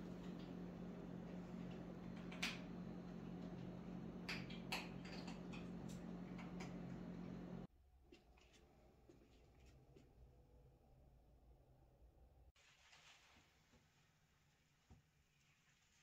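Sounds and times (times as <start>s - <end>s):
refrigerator humming: 0.0s - 7.7s.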